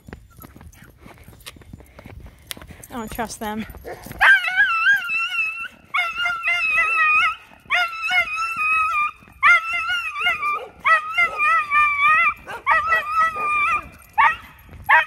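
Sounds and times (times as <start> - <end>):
dog screaming: 4.2 - 15.0.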